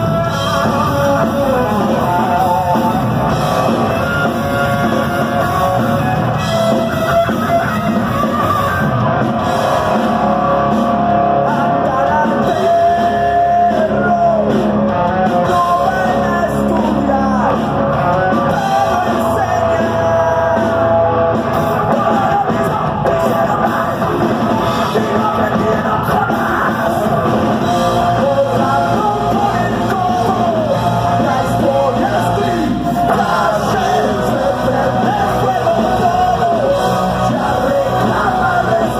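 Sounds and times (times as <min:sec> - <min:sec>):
bass guitar: 0:00.0 - 0:38.9
drum kit: 0:00.0 - 0:38.9
electric guitars: 0:00.0 - 0:38.9
person singing: 0:11.4 - 0:20.9, 0:21.5 - 0:38.9.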